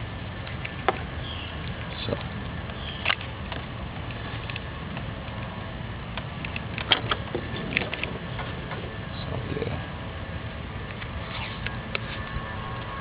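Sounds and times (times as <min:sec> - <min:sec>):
wires clicking and scraping: 0:01.6 - 0:09.8, 0:10.8 - 0:13.0.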